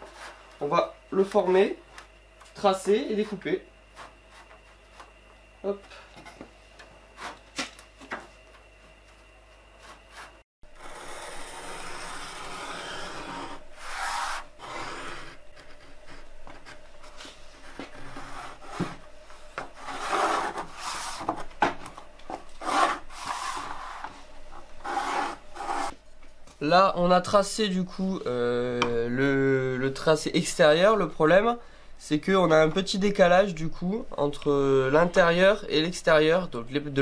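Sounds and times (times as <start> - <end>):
pencil scratching on wood: 19.8 - 21.3, 22.6 - 24.2, 24.8 - 26.0.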